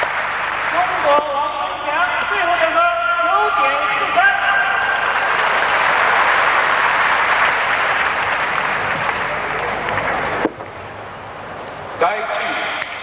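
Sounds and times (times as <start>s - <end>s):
audience applauding: 0.0s - 1.6s, 4.6s - 10.5s.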